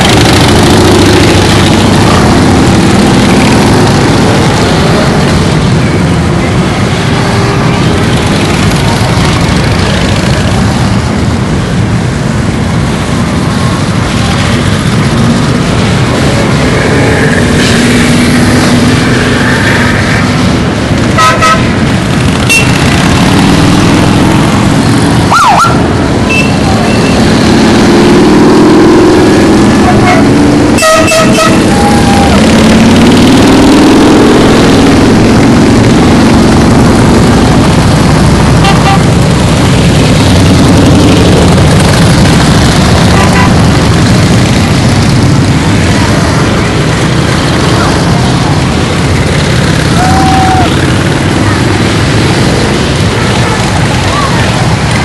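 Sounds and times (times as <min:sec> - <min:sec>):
motorcycle engines riding past: 0:00.0 - 0:55.0
short horn toots: 0:29.8 - 0:31.9.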